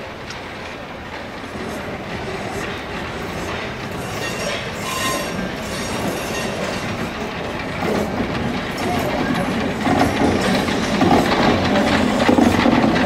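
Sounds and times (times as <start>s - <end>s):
steam locomotive rolling: 0.0s - 13.0s
wheels squealing on track: 4.0s - 6.9s.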